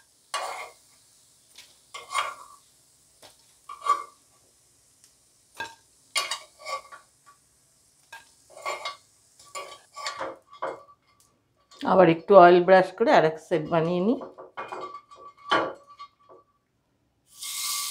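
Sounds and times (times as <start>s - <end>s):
faint steady hiss: 0.0s - 17.9s
metal spoon clinking on a pan: 5.6s - 7.0s, 14.2s - 16.4s.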